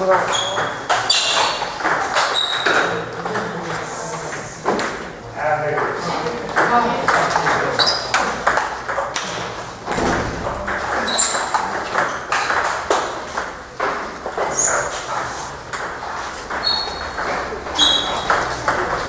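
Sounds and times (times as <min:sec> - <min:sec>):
table tennis balls clicking: 0:00.0 - 0:03.8, 0:05.8 - 0:19.0
short high squeaks: 0:02.2 - 0:02.7, 0:16.6 - 0:17.1, 0:17.7 - 0:18.3.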